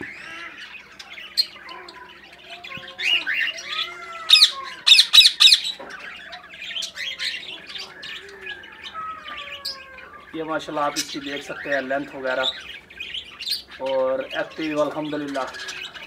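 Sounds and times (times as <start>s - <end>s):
parrots chattering and chirping: 0.0s - 16.0s
harsh parrot squawks: 3.0s - 5.8s.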